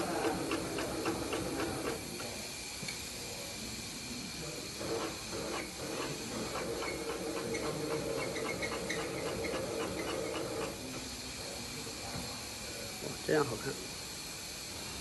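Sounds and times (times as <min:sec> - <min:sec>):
steady background hiss: 0:00.0 - 0:15.0
sewing machine motor humming: 0:04.8 - 0:10.9.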